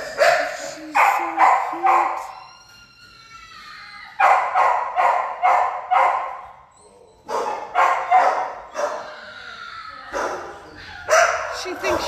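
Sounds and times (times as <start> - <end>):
dog barking: 0.0 - 2.3, 4.2 - 6.4, 7.3 - 9.1, 10.1 - 12.0.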